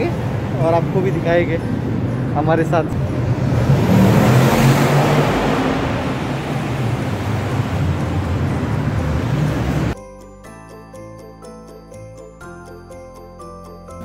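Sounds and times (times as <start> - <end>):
road traffic noise: 0.0 - 10.0
vehicle passing close by: 2.8 - 10.0.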